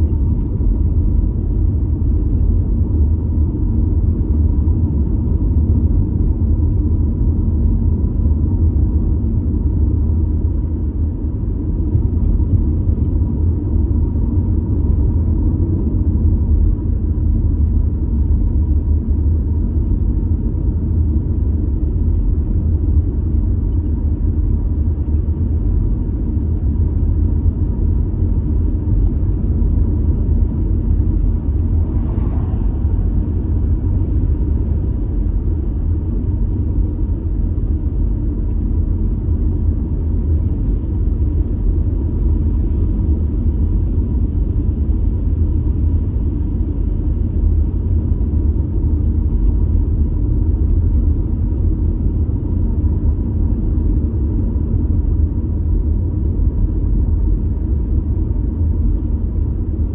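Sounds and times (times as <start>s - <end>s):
car engine running: 21.9s - 55.0s
tyres rumbling on road: 28.2s - 38.0s.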